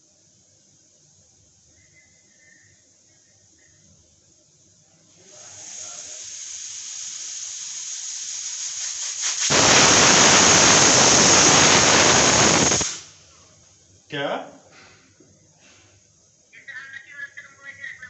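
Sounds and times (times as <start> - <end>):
pressure cooker steam hiss: 1.7 - 13.2
pressure cooker whistle: 5.3 - 13.1.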